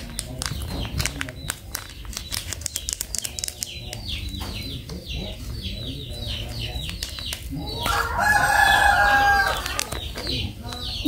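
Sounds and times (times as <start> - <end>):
plastic packet crinkling: 0.0 - 4.0, 9.4 - 10.5
birds chirping: 0.0 - 11.0.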